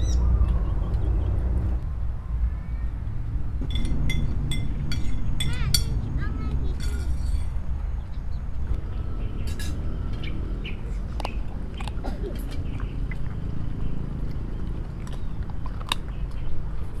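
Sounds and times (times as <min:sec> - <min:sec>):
steady low rumble: 0:00.0 - 0:17.0
dog chewing food: 0:11.0 - 0:17.0.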